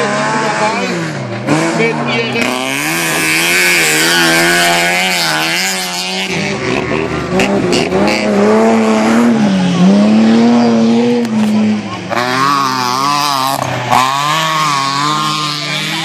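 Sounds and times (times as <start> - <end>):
race car engines revving: 0.0 - 16.0.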